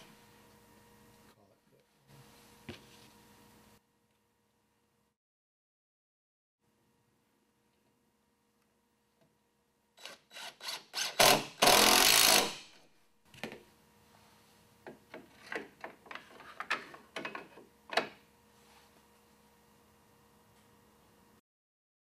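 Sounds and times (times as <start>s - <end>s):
cordless drill driving screw: 10.0s - 12.6s.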